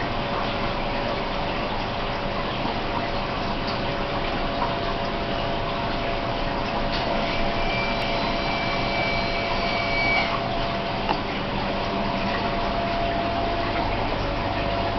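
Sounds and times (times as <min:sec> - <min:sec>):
aquarium pump water rushing: 0:00.0 - 0:14.9
low hum: 0:10.3 - 0:14.9.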